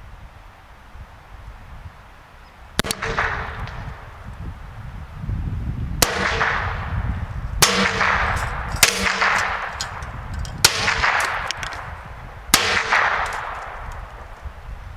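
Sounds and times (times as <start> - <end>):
rifle shots: 2.8 - 4.0, 6.0 - 7.0, 7.6 - 10.0, 10.6 - 14.2.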